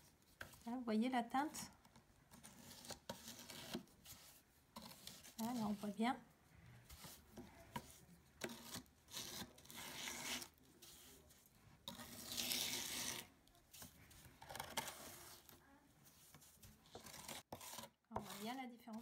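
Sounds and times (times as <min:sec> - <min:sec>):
metal scraper on wood: 0:02.4 - 0:03.9, 0:07.0 - 0:10.5, 0:11.8 - 0:13.3, 0:16.9 - 0:19.0.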